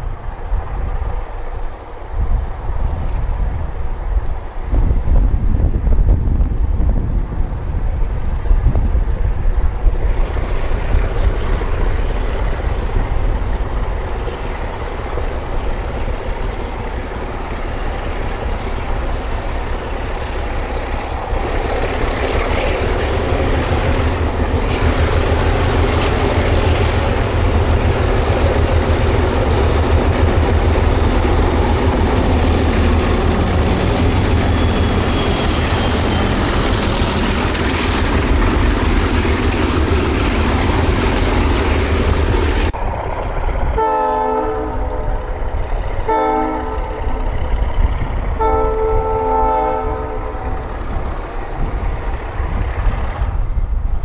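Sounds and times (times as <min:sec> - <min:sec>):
diesel locomotive engine rumble: 0:00.0 - 0:54.0
rail noise: 0:00.0 - 0:54.0
locomotive horn blasts: 0:43.8 - 0:45.3, 0:46.0 - 0:47.2, 0:48.4 - 0:50.6.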